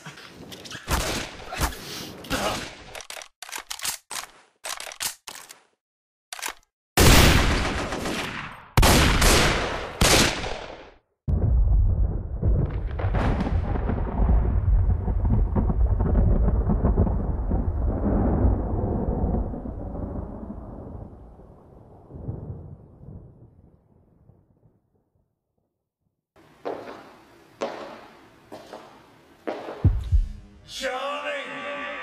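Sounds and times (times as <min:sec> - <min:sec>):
echoing gunshots: 0:07.0 - 0:11.0.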